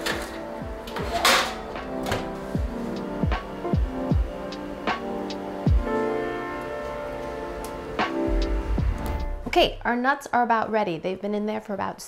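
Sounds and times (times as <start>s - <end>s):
electronic music with beat: 1.8s - 9.9s.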